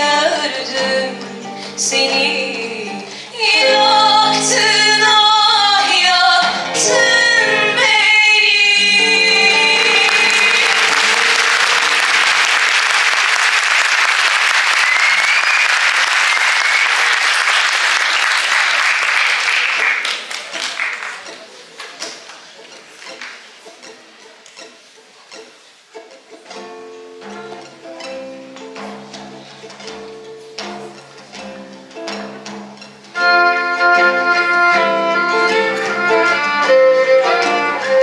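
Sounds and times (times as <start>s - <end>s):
women singing: 0.0s - 10.9s
violin: 0.0s - 12.5s, 33.1s - 38.0s
acoustic guitar: 0.0s - 12.8s, 19.6s - 38.0s
audience applause: 9.5s - 22.4s.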